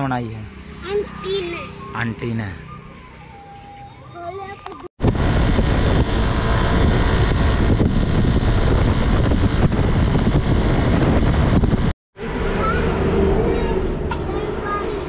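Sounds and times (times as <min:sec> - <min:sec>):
wind buffeting microphone: 0:05.0 - 0:15.0.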